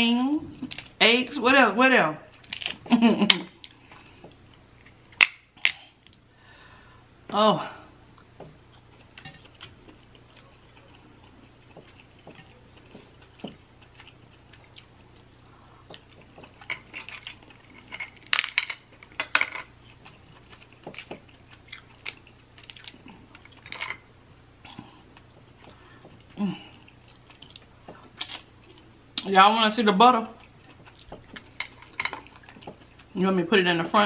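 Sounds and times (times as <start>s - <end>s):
chewing: 8.1s - 18.3s, 19.8s - 29.2s, 30.4s - 33.2s.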